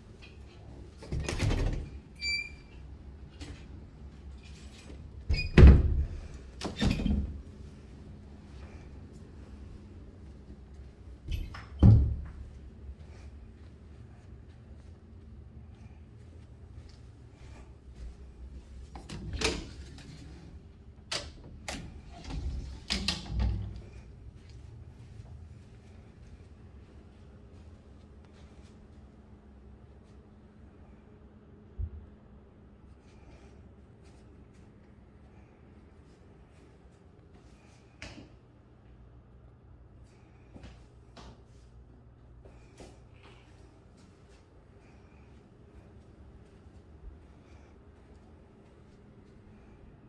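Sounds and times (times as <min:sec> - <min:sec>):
closet door clicks and knocks: 0:11.3 - 0:12.3.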